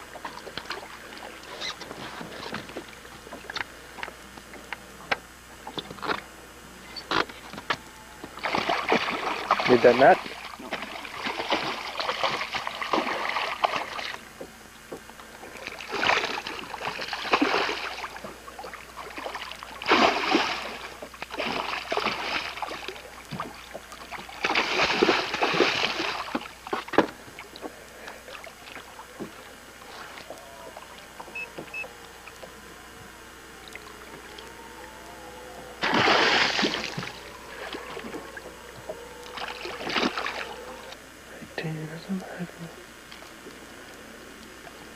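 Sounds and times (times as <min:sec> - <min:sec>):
fish splashing at water surface: 0:08.3 - 0:14.4, 0:15.5 - 0:32.6, 0:33.6 - 0:41.0.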